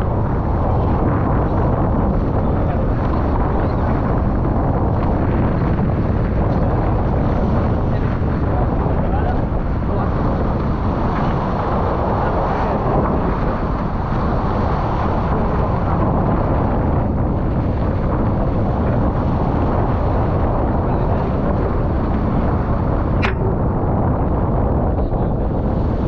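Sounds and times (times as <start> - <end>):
strong wind on microphone: 0.0 - 26.0
water rushing along hull: 0.0 - 26.0
sharp click: 23.2 - 23.5.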